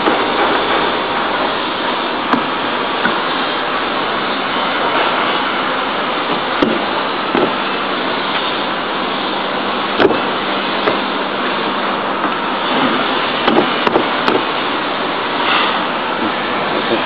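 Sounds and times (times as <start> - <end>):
loud rushing noise: 0.0 - 17.0
sharp knocks: 6.3 - 7.6, 10.0 - 10.2, 10.8 - 11.1, 13.4 - 14.5.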